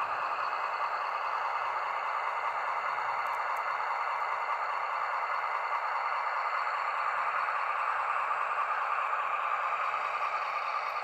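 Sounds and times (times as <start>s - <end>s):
model locomotive running: 0.0s - 11.0s.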